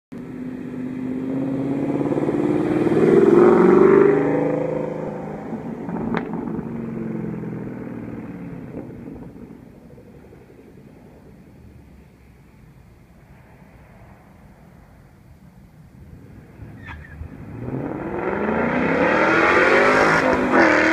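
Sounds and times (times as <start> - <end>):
car engine accelerating hard: 0.2 - 9.6, 16.2 - 20.9.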